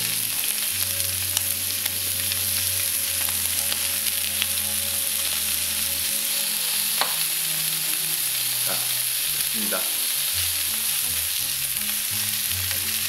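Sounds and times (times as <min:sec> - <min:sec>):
small crackling pops: 0:00.0 - 0:04.6
beef sizzling on a griddle: 0:00.0 - 0:13.0.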